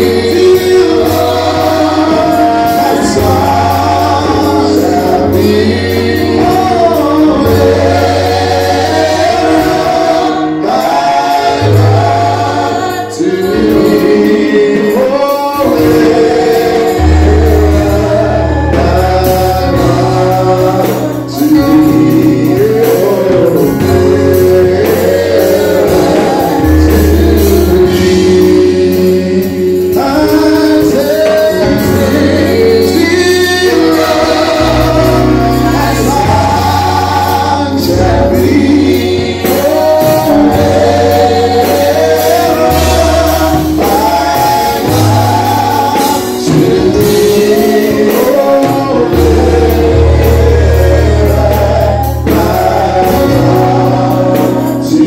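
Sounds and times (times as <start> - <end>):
congregation singing gospel: 0.0 - 55.0
man singing into microphone: 0.0 - 55.0
bass line: 15.6 - 55.0.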